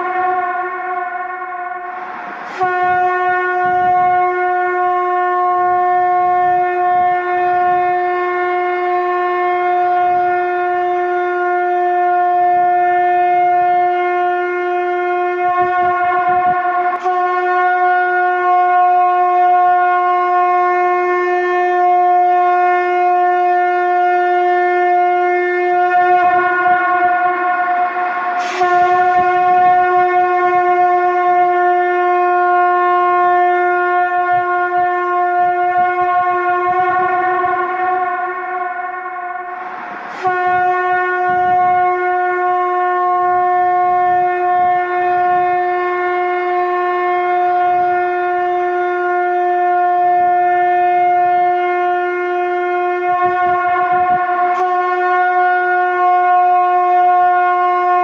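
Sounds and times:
conch shell trumpet blowing: 0.0s - 58.0s.

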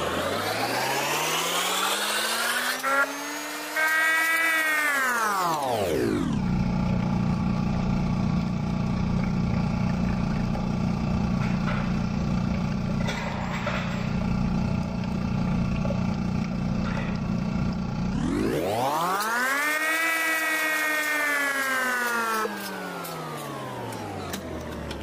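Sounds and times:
coffee vending machine humming: 0.0s - 25.0s.

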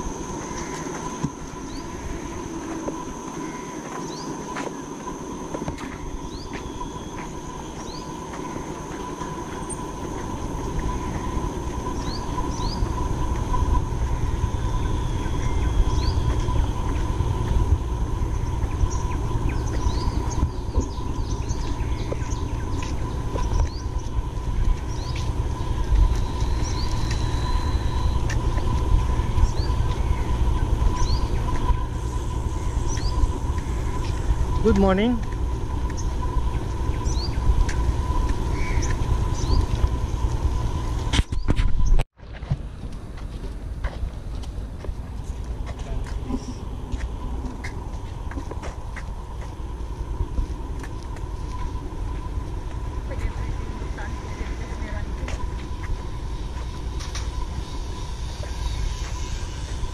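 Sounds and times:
steady high tone: 0.0s - 41.3s
low rumble: 5.1s - 59.9s
bird chirps: 10.8s - 17.1s, 18.2s - 34.9s, 35.9s - 37.8s, 38.5s - 40.3s.

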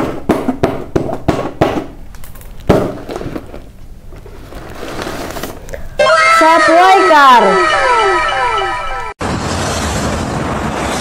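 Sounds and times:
paper rustling and tearing: 4.2s - 5.7s.

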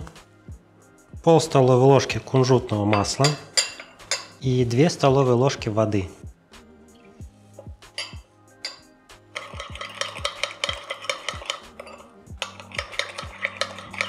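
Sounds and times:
utensil clinking against bowl: 2.9s - 4.4s, 7.6s - 14.0s.

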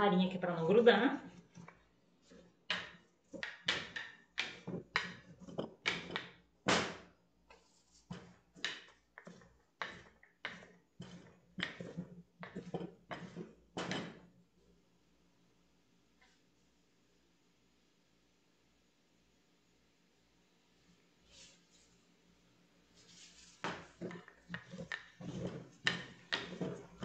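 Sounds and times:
rolling pin rubbing on dough: 0.8s - 6.3s, 7.5s - 13.7s, 22.9s - 27.0s.

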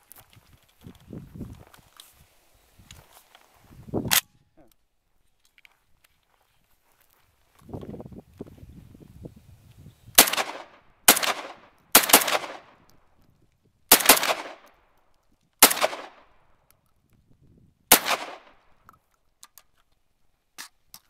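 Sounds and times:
shotgun shots with echo: 10.2s - 12.8s, 13.9s - 14.6s, 15.6s - 16.3s, 17.9s - 18.6s.

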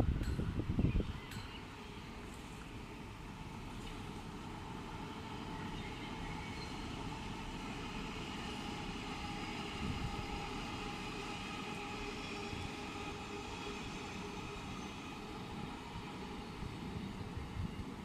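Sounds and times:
wind buffeting microphone: 0.0s - 1.5s, 9.6s - 10.6s, 15.6s - 18.0s
distant train rumbling: 0.0s - 18.0s
faint train whine: 0.0s - 18.0s.

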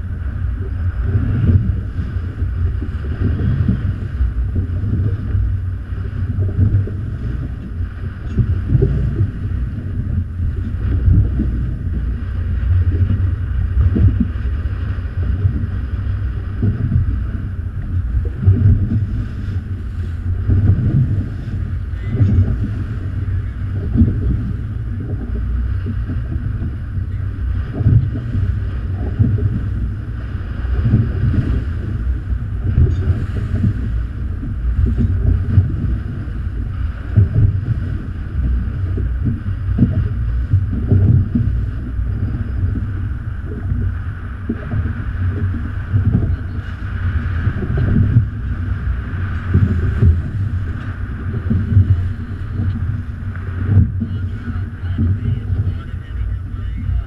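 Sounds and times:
water rushing past boat: 0.0s - 57.0s
wind buffeting microphone: 0.0s - 57.0s.

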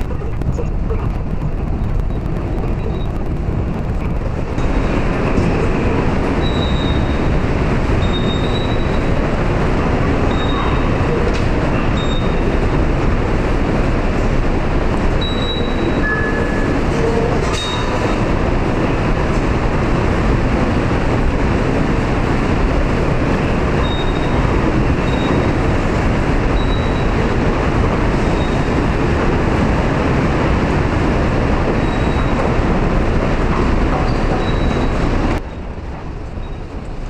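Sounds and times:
subway station rumble: 0.0s - 37.0s.

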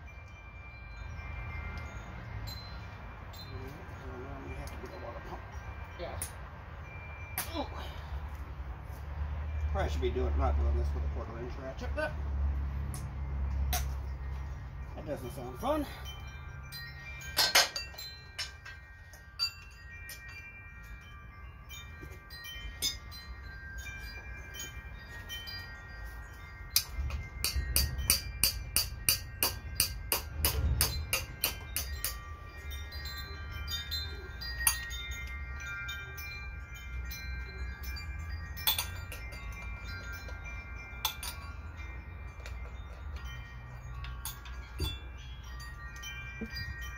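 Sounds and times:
chime-like ringing tones: 0.0s - 46.9s.

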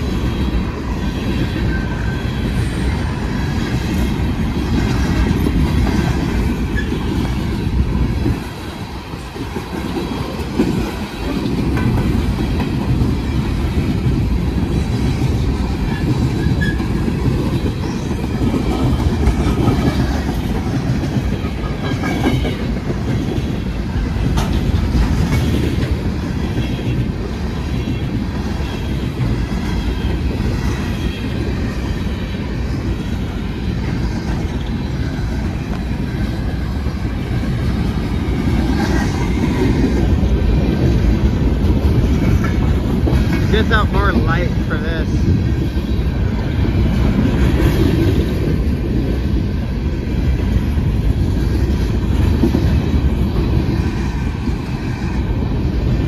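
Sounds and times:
freight train rumbling past: 0.0s - 56.0s
wheels clacking over rail joints: 2.8s - 44.6s.

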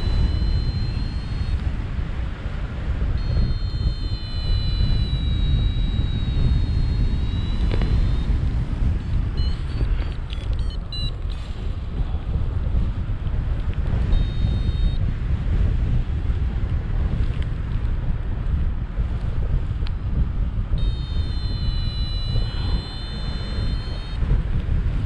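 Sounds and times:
faint high thin tones: 0.0s - 1.7s, 3.2s - 8.4s, 14.2s - 15.0s, 20.8s - 24.2s
short high beeps: 0.0s - 1.7s, 3.2s - 8.4s, 9.0s - 11.5s, 14.1s - 15.0s, 20.8s - 24.2s
wind rumbling on microphone: 0.0s - 25.0s.

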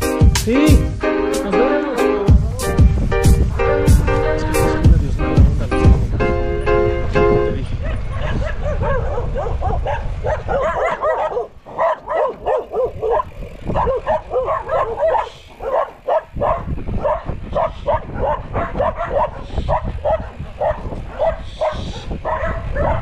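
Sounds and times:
music: 0.0s - 7.6s
dog yelping and barking: 7.8s - 23.0s.

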